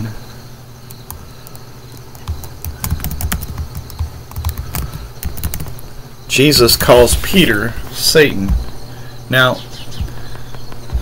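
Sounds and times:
computer keyboard key clicks: 0.9s - 5.8s.

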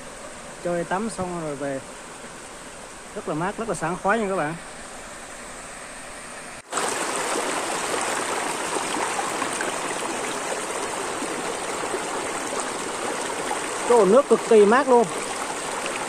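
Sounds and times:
stream running over rocks: 0.0s - 16.0s
water pouring over a ledge: 6.7s - 16.0s.

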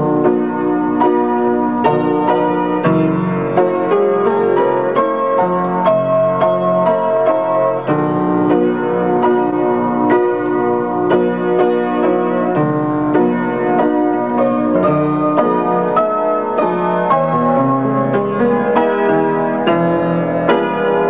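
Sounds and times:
piano melody over chords: 0.0s - 21.0s.

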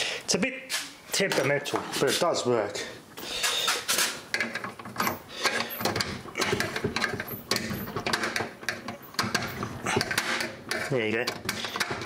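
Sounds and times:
metal clicks and knocks: 3.7s - 12.0s.

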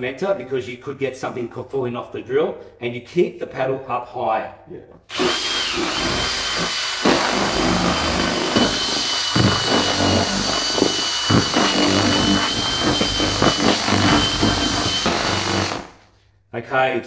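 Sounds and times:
power drill whining: 5.1s - 16.1s.

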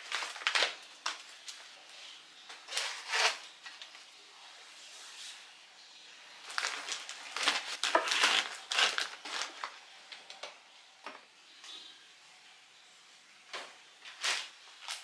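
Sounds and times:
plastic snack packets crinkling: 0.0s - 1.8s, 6.4s - 10.5s, 14.1s - 15.0s.

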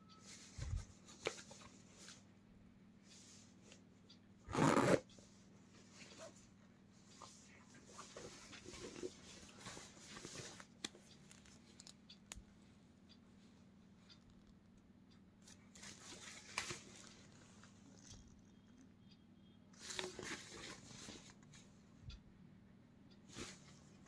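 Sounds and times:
soft ticks: 7.1s - 20.1s, 21.2s - 22.3s.

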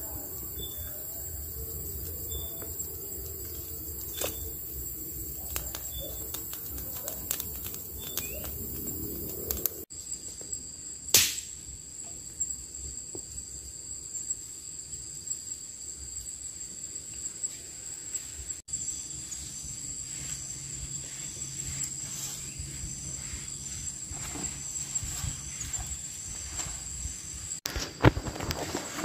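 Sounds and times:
high insect drone: 0.0s - 29.0s
sharp crack: 11.1s - 11.6s.

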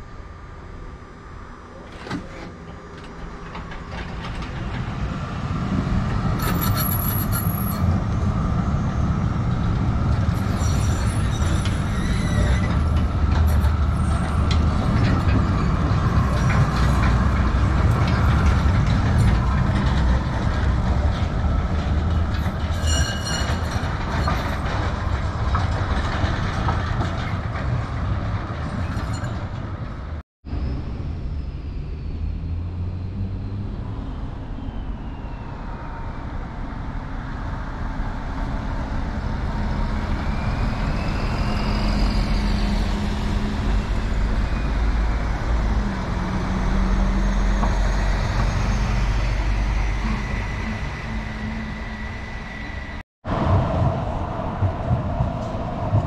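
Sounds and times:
tram wheels rumbling: 0.0s - 56.0s
high-pitched wheel squeal: 6.4s - 7.9s, 10.4s - 17.0s, 22.4s - 24.6s, 34.4s - 36.3s, 39.6s - 53.0s.

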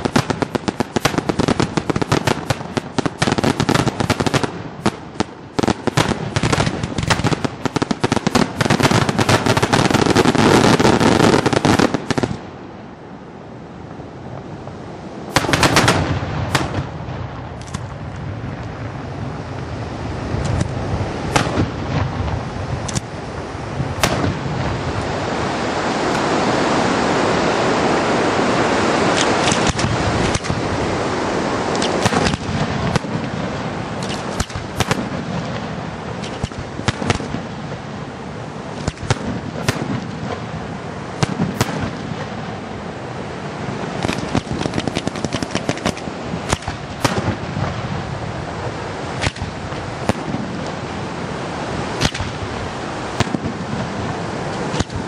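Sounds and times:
firework shells bursting: 0.0s - 12.4s, 15.3s - 18.0s, 24.0s - 24.5s, 29.1s - 30.7s, 31.7s - 33.4s, 34.0s - 37.5s, 38.7s - 40.5s, 41.2s - 42.4s, 43.9s - 47.8s, 51.9s - 52.4s
steady rushing noise: 0.0s - 55.0s.

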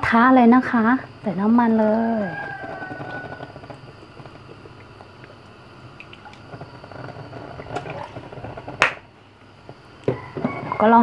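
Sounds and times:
oil pouring and gurgling: 0.9s - 10.9s.

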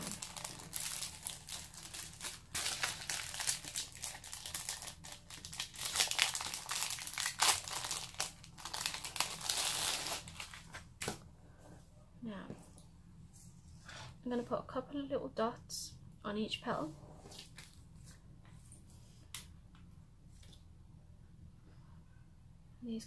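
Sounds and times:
plastic packaging crinkling: 0.0s - 11.1s.

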